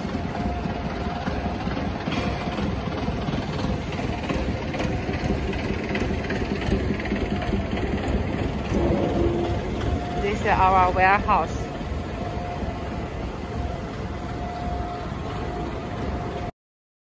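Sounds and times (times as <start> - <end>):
faint hum: 0.0 - 16.5
low factory rumble: 0.0 - 16.5.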